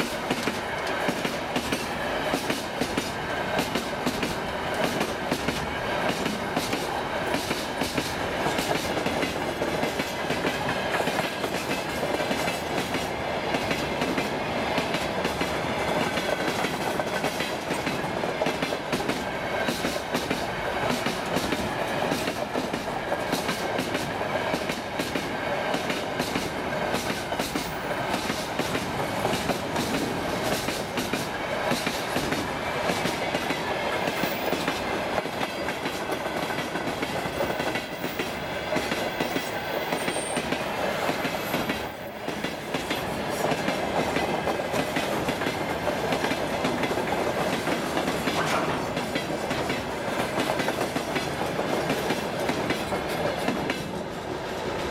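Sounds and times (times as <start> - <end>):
steel wheels rolling on rail: 0.0 - 54.9.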